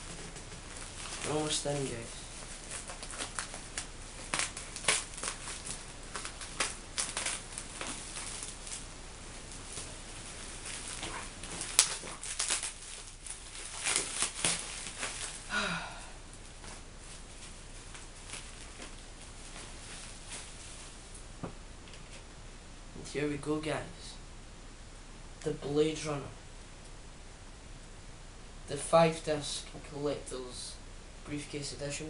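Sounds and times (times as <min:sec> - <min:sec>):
parcel packaging crinkling and tearing: 0:00.1 - 0:15.5, 0:17.2 - 0:20.8.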